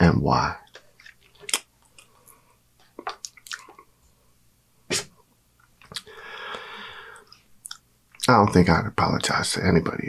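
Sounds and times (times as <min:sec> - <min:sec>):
mouth and lip clicks: 0:02.8 - 0:03.9, 0:04.9 - 0:06.1.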